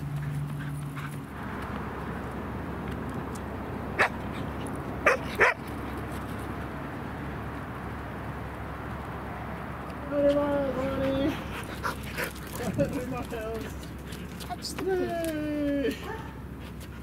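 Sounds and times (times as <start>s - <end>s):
dog barking: 5.0s - 5.6s.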